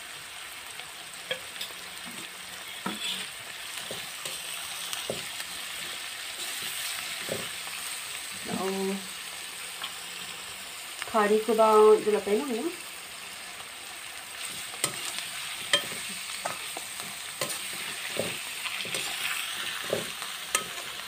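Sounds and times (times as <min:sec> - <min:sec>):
vegetables sizzling in a pan: 0:00.0 - 0:21.0
metal spoon clinking and scraping pan: 0:01.3 - 0:07.7, 0:14.4 - 0:21.0.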